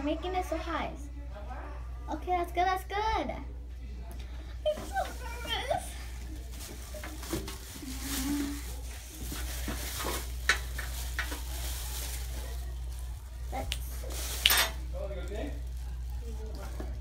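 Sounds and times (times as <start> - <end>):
plastic bag rustling and crinkling: 4.7 - 17.0.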